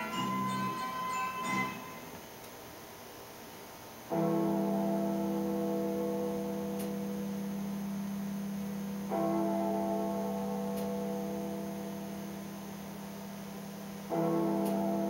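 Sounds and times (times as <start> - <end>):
keyboard chords: 0.0 - 2.3.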